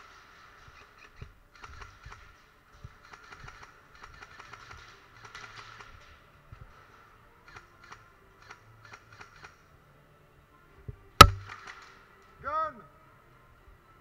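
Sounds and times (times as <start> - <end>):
loud sharp crack: 11.2 - 11.9
airsoft gun clicks: 11.2 - 12.0.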